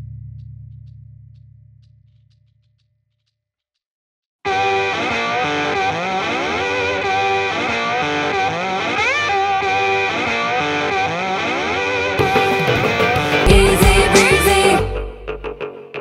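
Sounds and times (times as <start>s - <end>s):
distorted electric guitar music: 4.5s - 16.0s.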